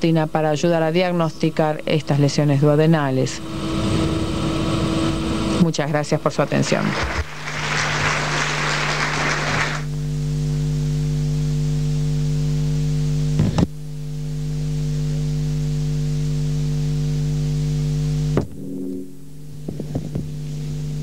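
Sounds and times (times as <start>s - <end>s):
electrical hum: 0.0s - 21.0s
audience applause: 6.4s - 9.9s.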